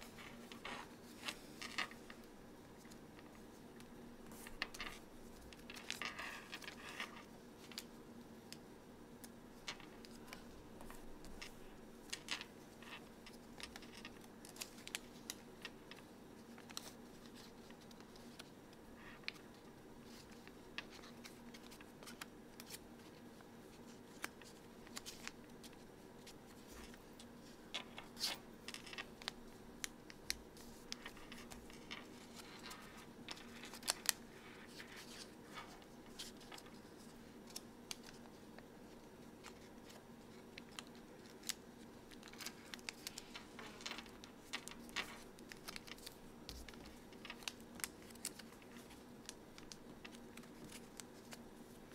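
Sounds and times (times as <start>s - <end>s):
faint steady hum: 0.0s - 51.9s
paper crackling while folded: 4.2s - 7.9s, 9.9s - 51.9s.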